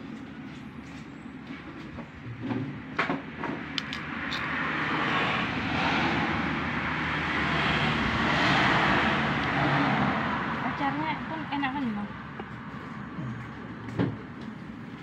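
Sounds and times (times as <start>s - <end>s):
vehicle passing close by: 3.6s - 14.0s.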